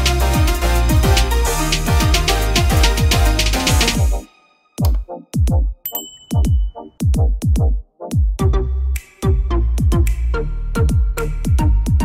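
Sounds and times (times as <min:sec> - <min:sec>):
deep kick drum thumping: 0:04.8 - 0:05.8, 0:07.0 - 0:08.6.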